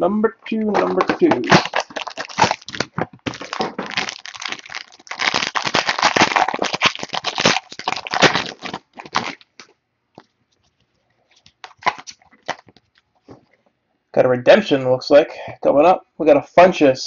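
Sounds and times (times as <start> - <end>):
foil wrapper crinkling and crackling: 0.7 - 9.7, 11.3 - 13.1.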